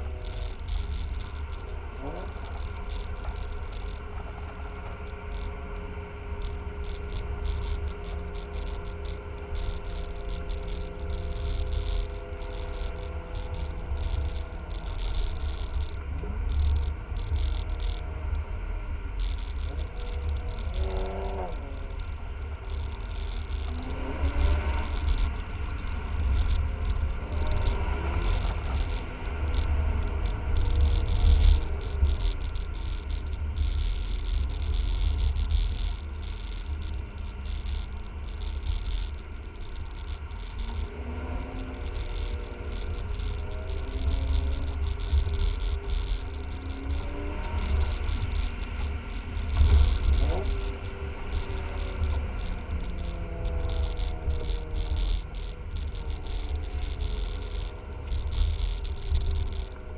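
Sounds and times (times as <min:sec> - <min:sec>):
car engine and road rumble: 0:00.0 - 0:59.9.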